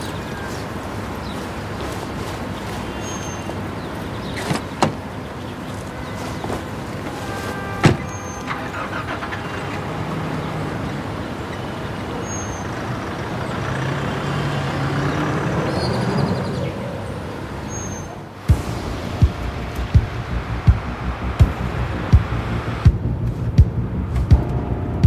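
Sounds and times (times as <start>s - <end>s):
car engine driving slowly: 0.0s - 15.7s, 18.5s - 25.0s
car door shutting: 7.8s - 9.3s.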